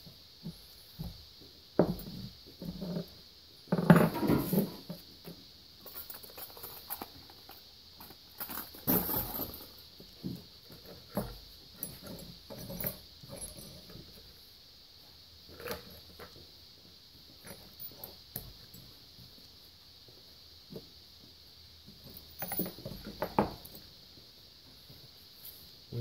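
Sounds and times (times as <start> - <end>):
debris and tools scraping and clinking: 3.7 - 5.0, 5.8 - 9.8.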